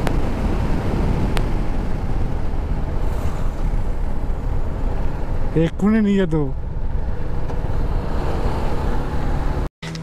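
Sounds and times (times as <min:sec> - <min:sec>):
wind rush over microphone: 0:00.0 - 0:05.6
motorcycle low rumble: 0:00.0 - 0:10.0.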